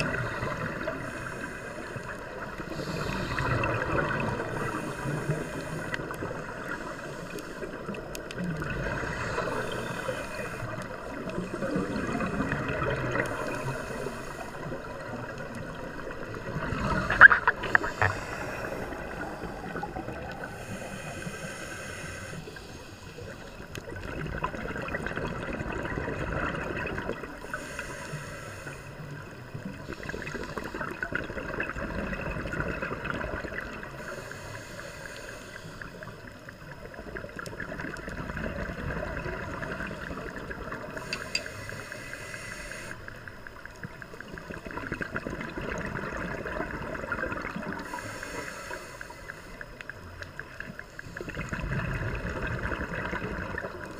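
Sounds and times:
regulator inhale hiss: 0.0s - 24.0s, 27.2s - 31.2s, 33.4s - 37.4s, 39.4s - 44.3s, 45.9s - 52.6s
gurgling bubble exhales: 2.0s - 6.8s, 11.1s - 13.8s, 14.6s - 20.6s, 23.7s - 27.5s, 29.6s - 34.0s, 36.8s - 41.1s, 44.2s - 48.0s, 51.1s - 53.9s.

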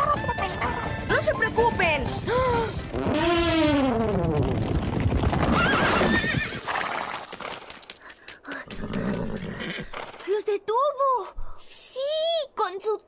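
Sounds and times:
galloping hooves: 2.9s - 10.3s
horses whinnying: 5.4s - 7.7s, 8.7s - 10.2s.

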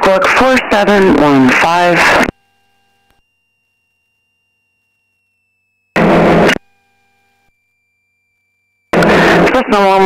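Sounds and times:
radio static burst: 0.0s - 3.2s, 6.0s - 6.8s, 8.9s - 10.0s.

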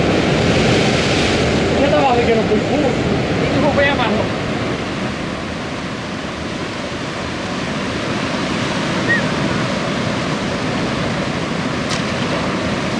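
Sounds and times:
sea surf breaking over rocks: 0.0s - 12.9s.

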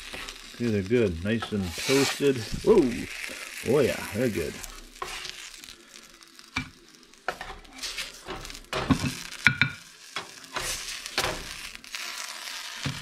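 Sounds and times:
sizzle of frying in oil: 0.0s - 13.0s
plastic spatula scraping a pan: 1.3s - 3.3s, 4.4s - 5.4s, 7.3s - 9.2s.

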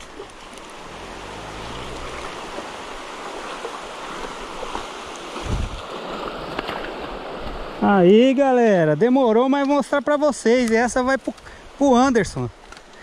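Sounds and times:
river rushing over rocks: 0.0s - 9.0s.

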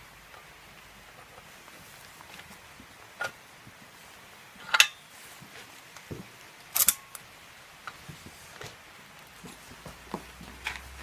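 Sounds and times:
airgun action metal clicks: 6.8s - 7.2s.

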